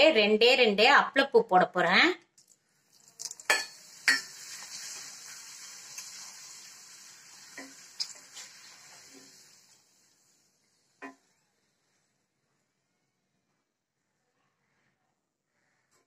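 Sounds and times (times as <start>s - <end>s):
papads sizzling in hot oil: 2.7s - 11.3s.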